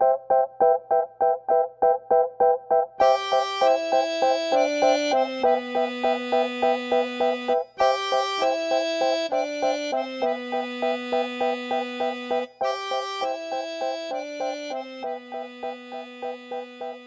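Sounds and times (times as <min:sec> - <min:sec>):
held bass notes: 0:03.0 - 0:16.6
short repeated chords: 0:03.0 - 0:16.7.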